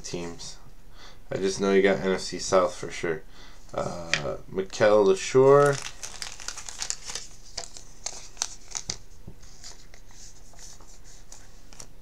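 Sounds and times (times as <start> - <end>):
soft card rustle: 5.4 - 12.0.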